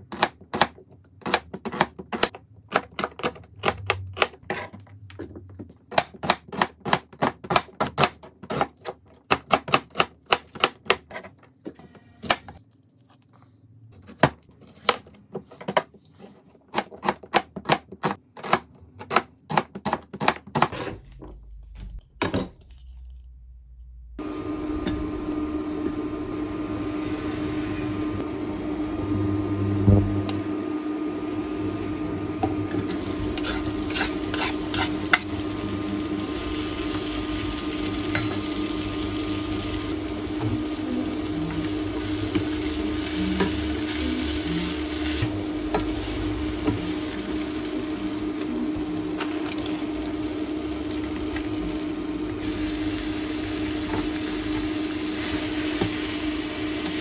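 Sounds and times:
knife slicing onion on cutting board: 14.0s - 21.0s
butter sizzling in saucepan: 32.5s - 40.4s.

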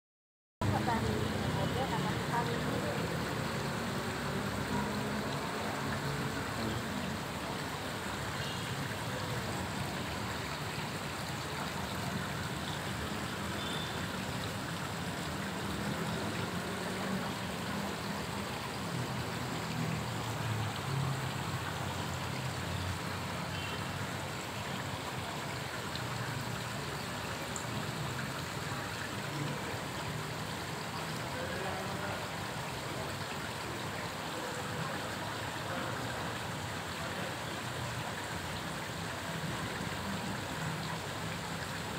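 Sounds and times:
water splashing into pond: 0.6s - 41.9s.

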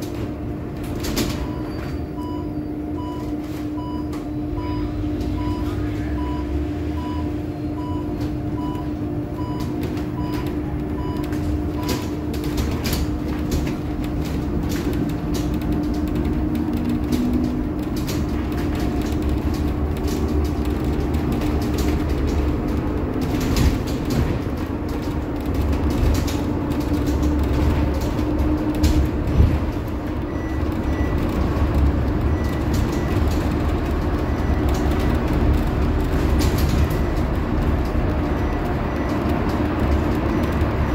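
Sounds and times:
rattles and clicks from bus body: 0.0s - 6.4s, 7.0s - 40.9s
road rumble and tyre noise: 0.0s - 40.9s
soft repeating beep: 1.4s - 12.0s.

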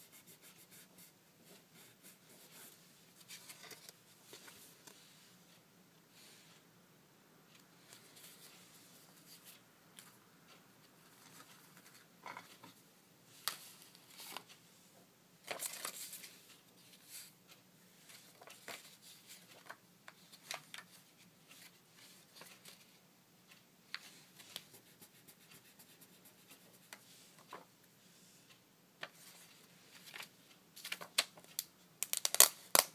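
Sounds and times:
paper rustling: 15.4s - 17.3s, 29.0s - 31.6s.

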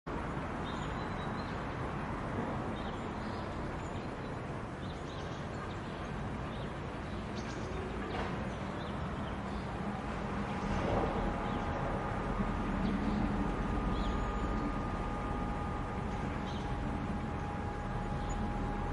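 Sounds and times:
steady hum: 1.6s - 18.9s
low rumble: 9.8s - 18.9s.

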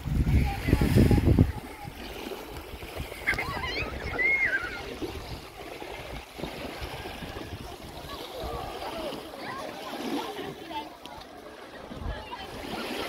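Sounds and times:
wind buffeting microphone: 0.0s - 9.2s.

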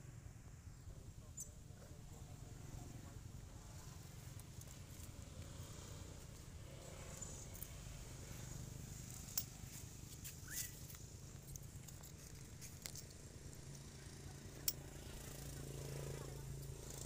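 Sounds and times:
short rising squeak: 10.3s - 10.9s.

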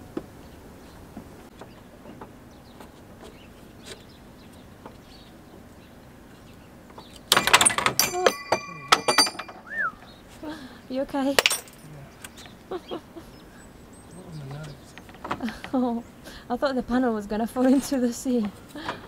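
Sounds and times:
metal clatter with ringing: 7.3s - 9.7s, 11.3s - 11.9s.

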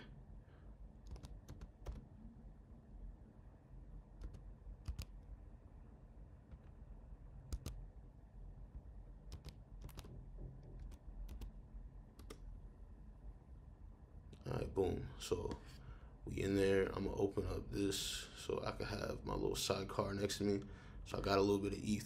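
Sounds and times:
keyboard keys clicking: 1.0s - 2.1s, 4.2s - 5.1s, 7.5s - 7.8s, 9.3s - 11.5s, 12.2s - 12.4s.

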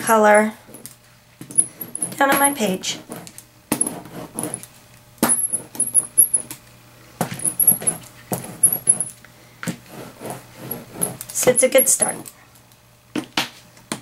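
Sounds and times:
paint roller rasping on paper: 2.6s - 4.6s, 9.8s - 12.3s.

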